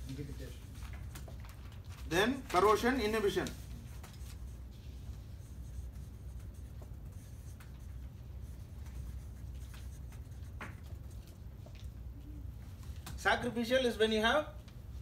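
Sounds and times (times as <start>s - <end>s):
low steady hum: 0.0s - 15.0s
marker pen scratching on paper: 2.7s - 11.9s.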